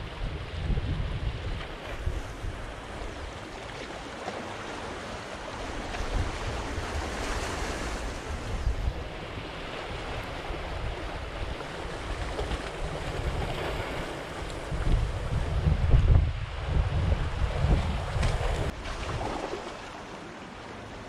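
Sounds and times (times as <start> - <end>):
wind rumble on microphone: 0.0 - 3.6, 5.5 - 19.6
sea waves splashing on concrete: 9.5 - 16.3, 17.1 - 20.8.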